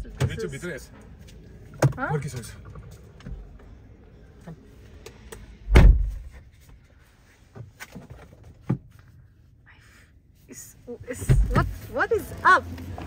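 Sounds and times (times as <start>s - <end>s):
car door slamming: 5.6s - 6.4s.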